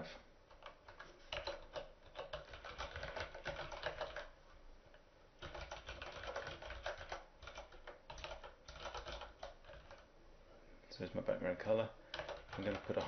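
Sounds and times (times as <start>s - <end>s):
typing on computer keyboard: 0.5s - 4.4s, 5.4s - 10.1s, 12.1s - 13.0s.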